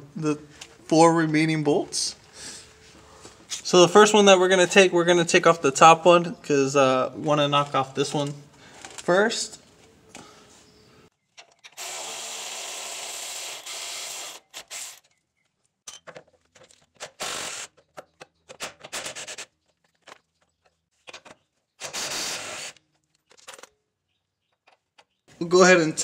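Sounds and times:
power ratchet running: 11.7s - 15.0s.

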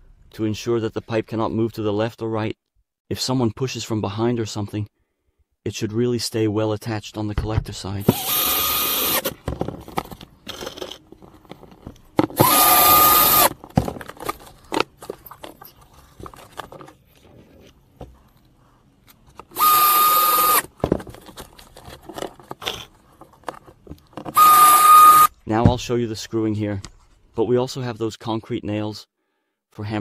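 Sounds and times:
drill motor whine: 8.0s - 9.3s, 12.4s - 13.5s, 19.6s - 20.6s, 24.4s - 25.3s.

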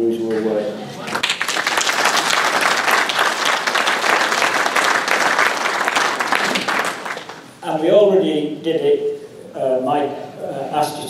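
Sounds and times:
roomful of people applauding: 0.4s - 7.6s.

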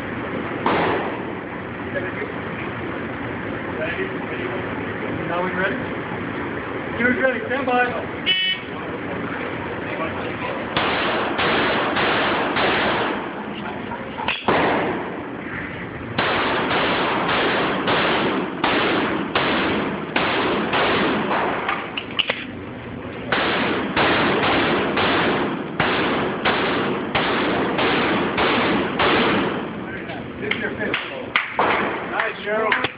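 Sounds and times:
pistol shots echoing indoors: 10.8s - 13.2s, 16.2s - 21.8s, 23.3s - 29.7s
sharp click: 21.7s - 22.5s.

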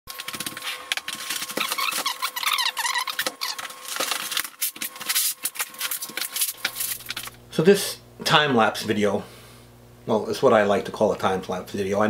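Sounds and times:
high squeaky chirps: 1.6s - 3.7s.

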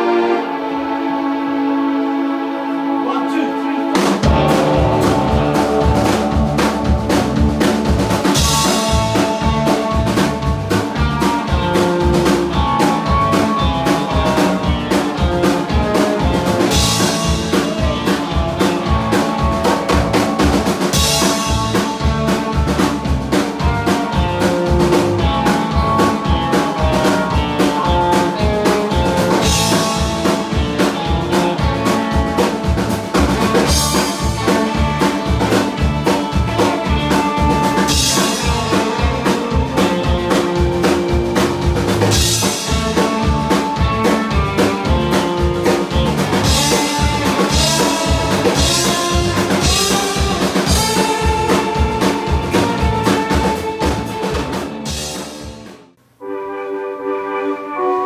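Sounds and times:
electric guitar: 3.6s - 55.9s
drum kit: 3.8s - 56.0s
bass guitar: 4.0s - 55.9s
cymbal crashes: 4.2s - 9.1s.

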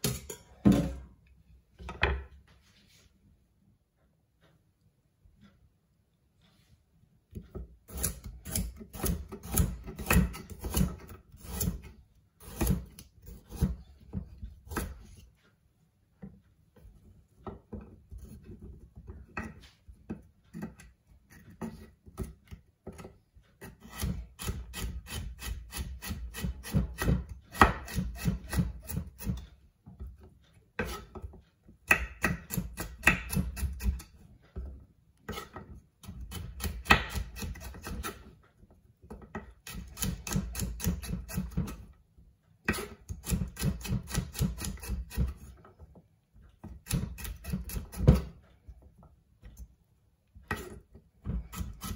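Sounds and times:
knife chopping on wooden board: 7.3s - 15.1s, 22.9s - 29.4s, 30.8s - 34.1s, 35.3s - 38.3s, 39.2s - 41.8s, 42.6s - 45.5s, 46.6s - 48.4s, 50.5s - 51.9s.

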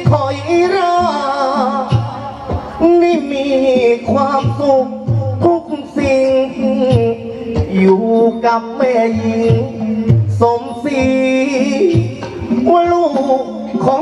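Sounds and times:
instrumental accompaniment: 0.0s - 14.0s
percussion beats: 0.0s - 14.0s
person singing into a microphone: 0.0s - 14.0s.

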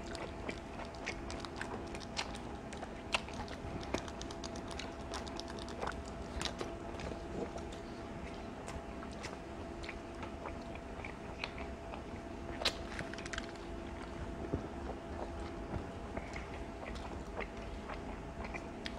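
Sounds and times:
crunchy chewing: 0.0s - 18.9s.

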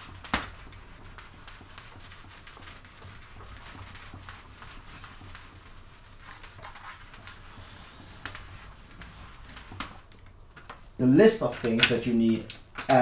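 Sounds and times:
eraser rubbing a whiteboard: 0.0s - 10.1s.

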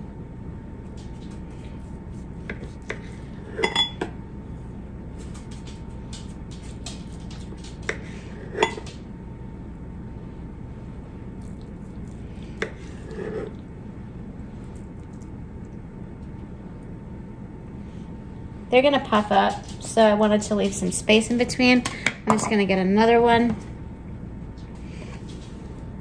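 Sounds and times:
steady low hum: 0.0s - 26.0s
knife clinking on ceramic plate: 3.6s - 4.1s.

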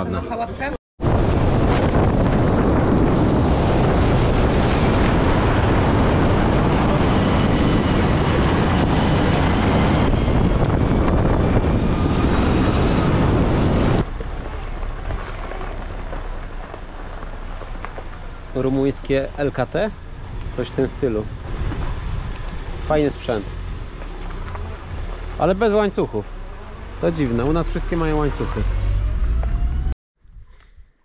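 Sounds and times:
wind and road noise: 0.0s - 31.0s
wind buffeting microphone: 1.0s - 25.9s.

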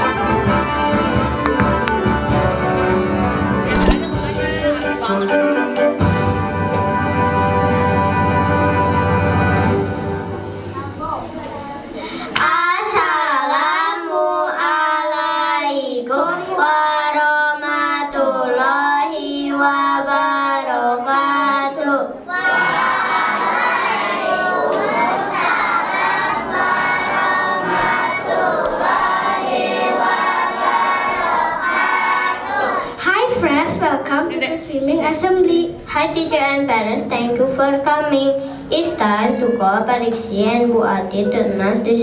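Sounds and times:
child singing into microphone: 11.6s - 33.8s, 35.3s - 42.0s
children singing together: 12.3s - 33.0s.

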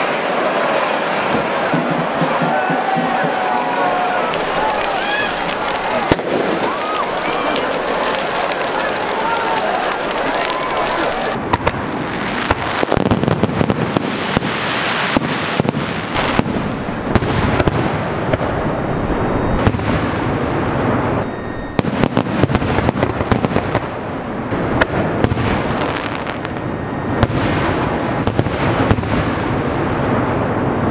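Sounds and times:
fireworks bangs and crackles: 0.0s - 30.9s.

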